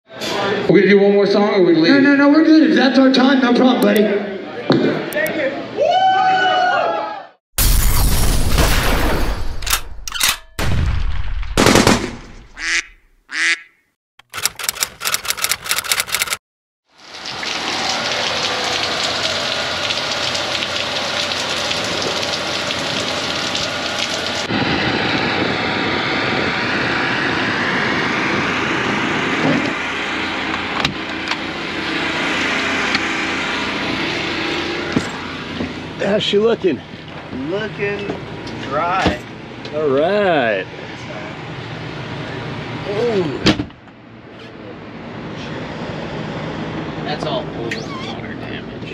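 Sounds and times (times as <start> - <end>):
heavy rain on pavement: 16.9 - 24.5.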